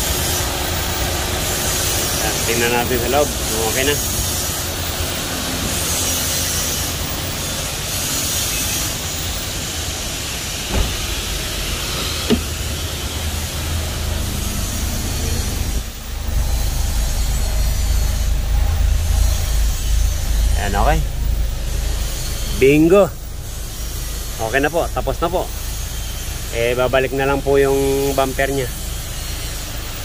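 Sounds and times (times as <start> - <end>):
air conditioning hiss: 0.0 - 30.0
car engine rumbling: 0.0 - 30.0
sharp knocks: 10.7 - 11.1, 12.0 - 12.6.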